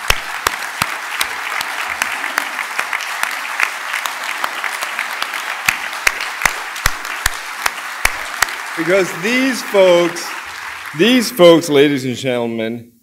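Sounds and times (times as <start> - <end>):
loud close single claps: 0.0 - 2.2, 2.8 - 8.9
audience applauding: 0.0 - 12.0.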